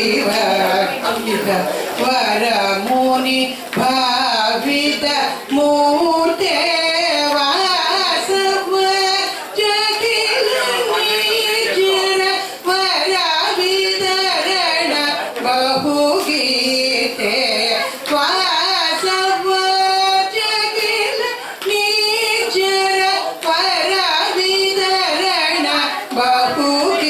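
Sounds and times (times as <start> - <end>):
woman singing into a microphone: 0.0 - 27.0.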